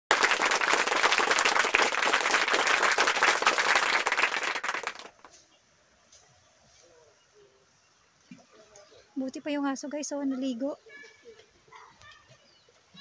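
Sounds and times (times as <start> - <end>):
applause: 0.0 - 5.3.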